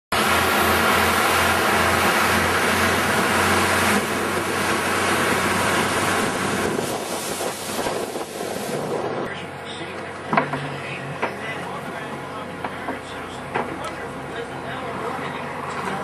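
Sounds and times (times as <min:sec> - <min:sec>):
rushing wind: 0:00.1 - 0:09.6
boat engine humming: 0:00.1 - 0:16.0
water rushing: 0:00.1 - 0:16.0.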